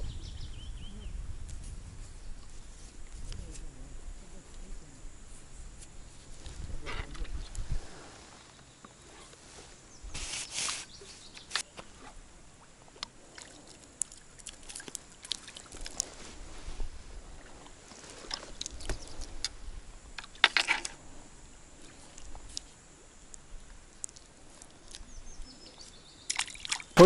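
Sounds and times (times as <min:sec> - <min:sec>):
small water splashes: 0:12.6 - 0:16.2, 0:26.2 - 0:27.0
fishing tackle clicks and rustles: 0:20.2 - 0:21.0.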